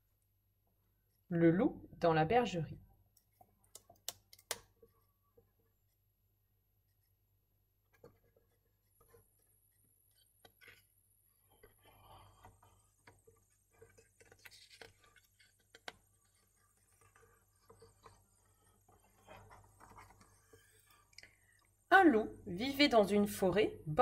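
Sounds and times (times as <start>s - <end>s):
paper pages turning: 13.1s - 20.8s.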